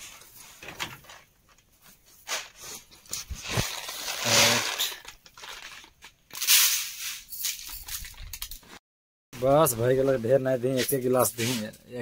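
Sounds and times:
plastic sack rustling: 0.0 - 8.8.

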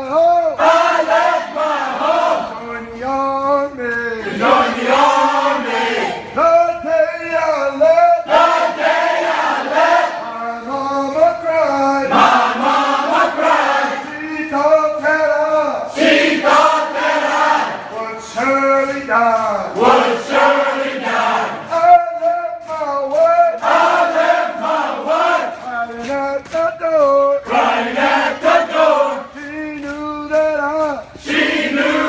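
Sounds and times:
men singing chant-like chorus: 0.5 - 3.1, 8.3 - 14.2.

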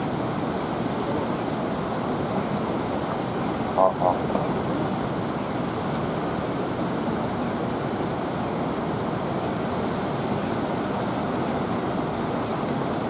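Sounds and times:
floodwater rushing over weirs: 0.0 - 13.0.

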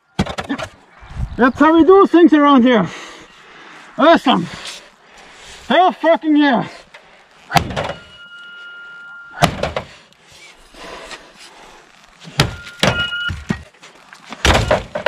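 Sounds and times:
axe striking sheet metal: 7.5 - 8.0
metallic ring: 7.9 - 9.1.

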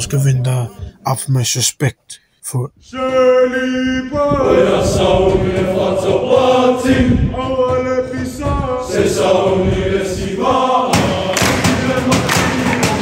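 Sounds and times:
boys singing in unison: 2.9 - 13.0
sharp hand claps: 11.2 - 13.0.

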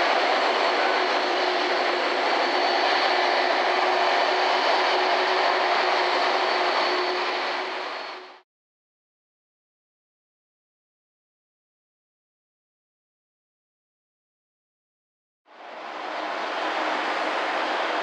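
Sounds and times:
faint steady whine: 0.0 - 8.4, 15.5 - 18.0
jet airliners running: 0.0 - 8.4, 15.5 - 18.0.

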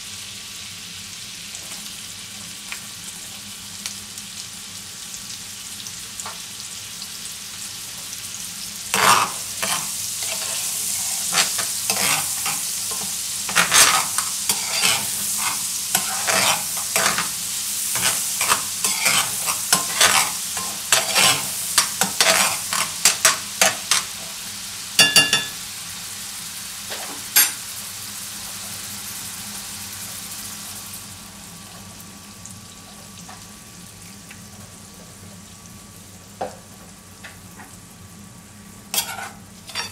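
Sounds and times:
mushrooms sizzling in butter: 0.0 - 39.9
metal spoon scraping pan: 8.9 - 17.3, 17.9 - 24.1, 39.0 - 39.9
metallic ring from pan: 25.0 - 25.6.

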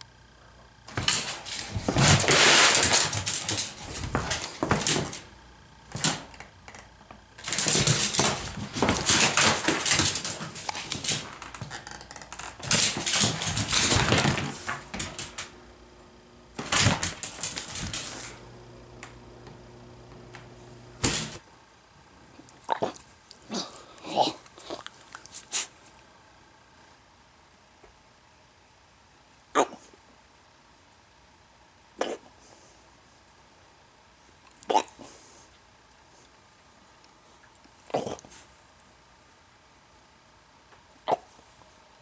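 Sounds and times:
dog claws clicking on hard floor: 0.9 - 5.3, 5.9 - 15.5, 16.6 - 18.4, 21.0 - 21.4.

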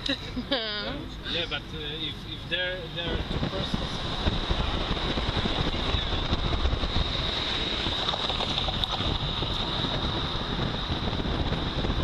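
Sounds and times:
road noise: 0.0 - 12.0
wind buffeting microphone: 2.5 - 12.0.

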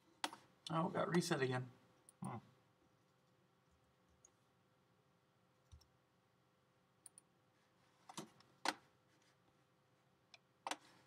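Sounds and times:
keyboard and mouse clicks: 5.6 - 5.9, 7.0 - 7.3, 10.3 - 10.9.

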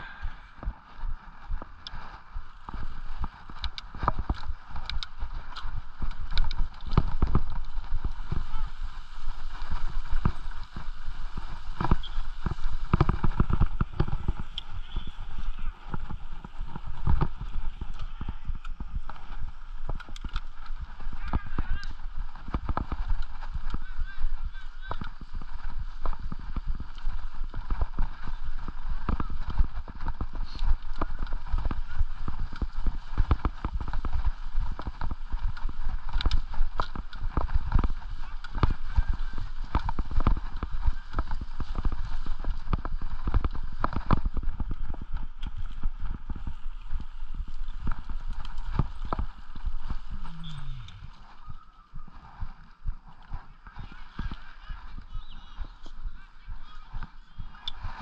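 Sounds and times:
mountain bike rattling and clunking: 1.0 - 51.4
low rumble: 24.5 - 58.0.

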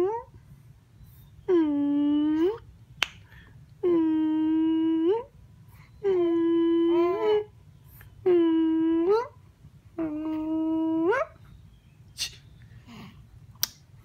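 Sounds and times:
infant cooing: 6.1 - 7.5, 10.0 - 11.3.

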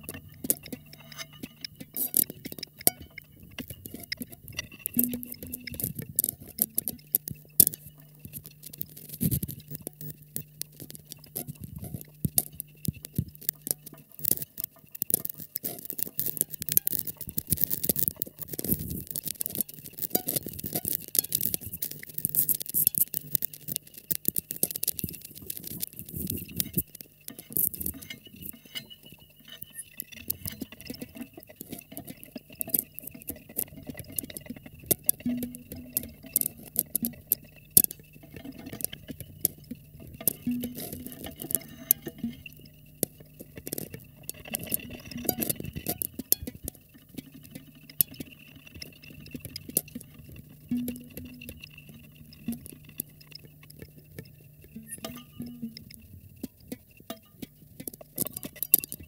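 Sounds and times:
small clicks and crackles: 0.0 - 59.0
thin high tone: 5.0 - 5.9, 54.8 - 56.2.

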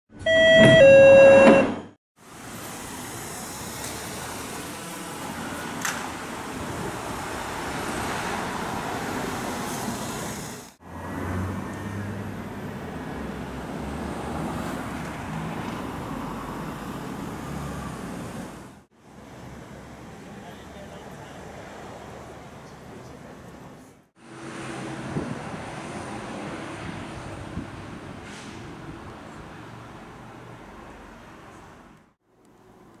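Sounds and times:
road traffic with cars passing: 0.1 - 1.6, 2.2 - 33.0.

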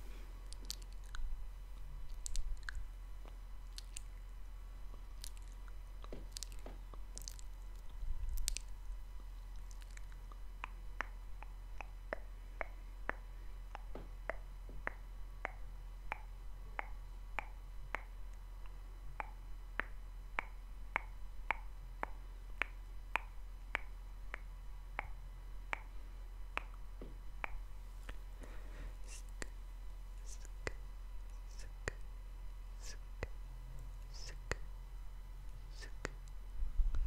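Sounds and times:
tongue and mouth clicks: 0.4 - 4.2, 4.9 - 8.8, 9.5 - 25.9, 26.5 - 26.8, 27.4 - 28.2, 29.1 - 29.6, 32.8 - 33.4, 34.0 - 34.7, 35.7 - 37.0.

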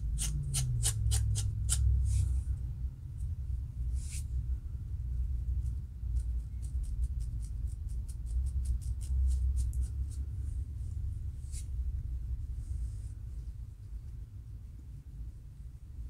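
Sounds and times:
low rumble: 0.0 - 16.0
fingernails scratching scalp: 6.1 - 10.2.

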